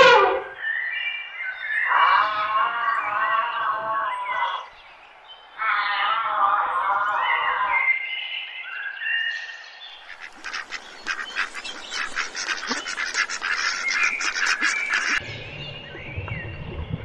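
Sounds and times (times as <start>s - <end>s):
birds chirping: 7.1s - 17.0s
geese and ducks honking and quacking: 10.0s - 15.2s
low rumble: 15.2s - 17.0s.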